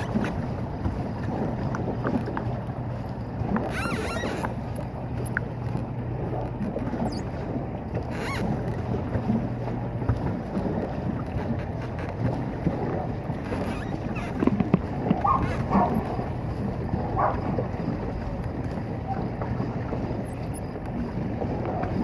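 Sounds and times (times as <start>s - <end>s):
low steady hum: 0.0s - 22.0s
paddle wheel churning water: 0.0s - 22.0s
wind buffeting microphone: 8.6s - 22.0s.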